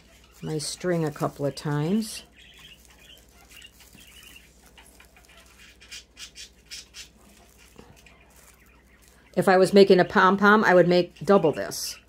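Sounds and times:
paper rustling: 0.0 - 9.5
pet birds chattering: 0.0 - 12.0.

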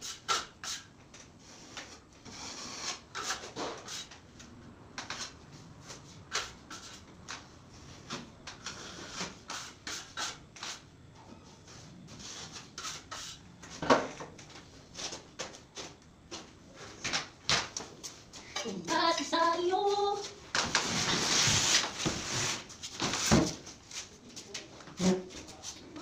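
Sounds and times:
putty knife scraping: 12.3 - 13.4.

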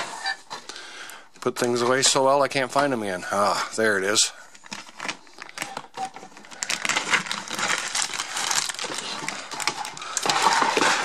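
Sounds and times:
plastic packaging crinkling: 4.0 - 11.0.

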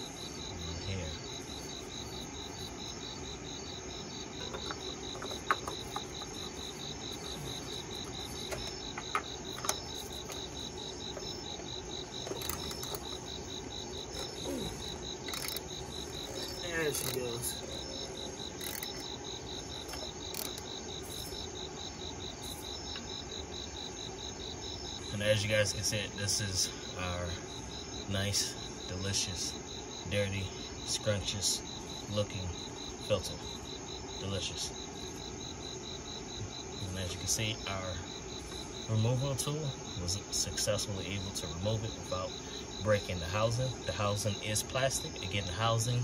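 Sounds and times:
insects chirping: 0.0 - 46.0
wrench clicks and creaks: 12.2 - 13.2, 15.2 - 19.1, 19.8 - 20.7.

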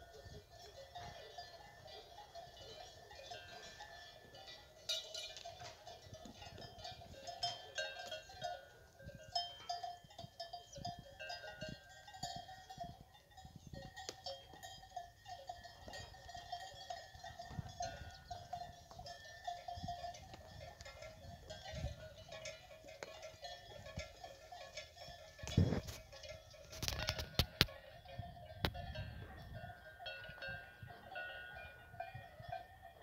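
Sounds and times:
cow bells clanking: 0.0 - 33.0.

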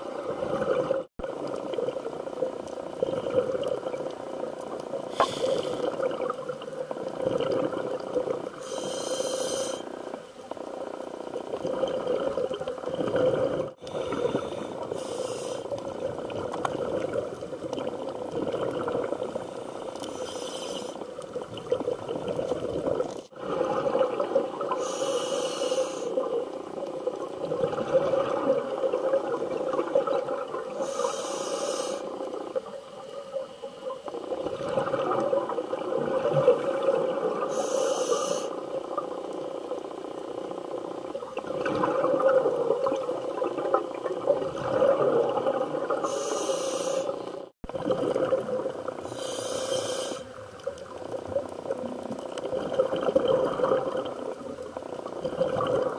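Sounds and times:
underwater bubbling rumble: 0.0 - 8.6, 10.0 - 20.1, 20.9 - 24.8, 26.2 - 30.9, 32.1 - 37.5, 38.6 - 46.1, 47.2 - 49.3, 50.3 - 55.9
regulator hiss: 5.0 - 5.9, 8.6 - 10.0, 13.8 - 15.8, 19.5 - 21.1, 24.7 - 26.2, 30.8 - 32.2, 37.5 - 38.7, 46.0 - 47.3, 49.0 - 50.4.

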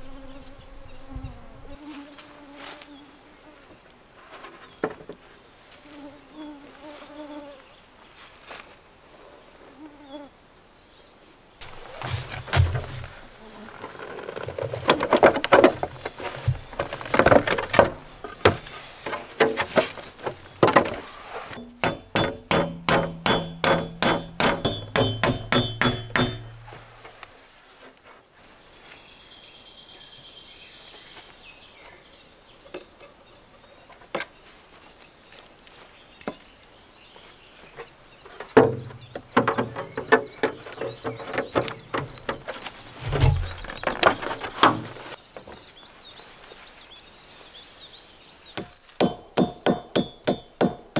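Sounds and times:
knocks and handling: 4.3 - 5.2, 11.6 - 28.2, 37.6 - 45.7
hammer blows on wood: 21.6 - 27.0.

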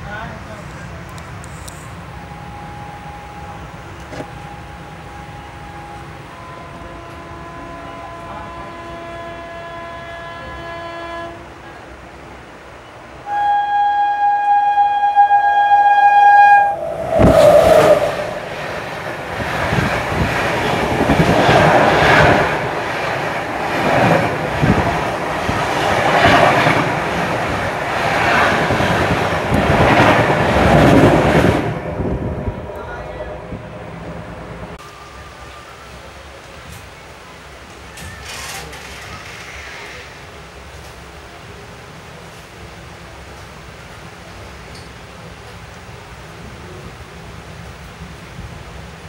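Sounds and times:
loud rush of passing train: 0.0 - 49.0
train horn: 4.2 - 11.6, 13.2 - 18.4.

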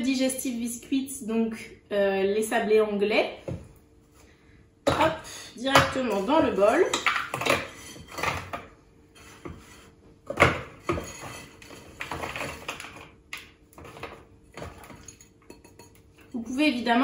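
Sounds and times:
biscuits clattering into a bowl: 10.3 - 16.1.

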